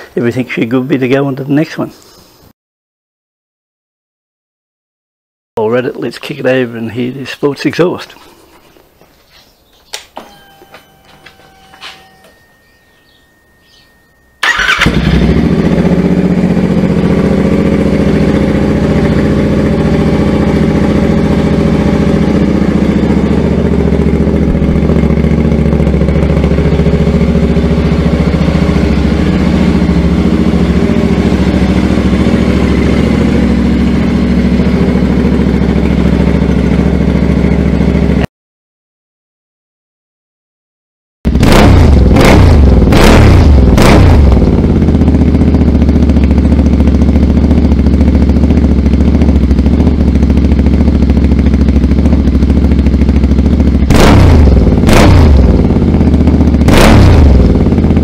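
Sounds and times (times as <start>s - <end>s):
motorcycle engine starting and idling: 10.2s - 38.3s, 41.3s - 58.0s.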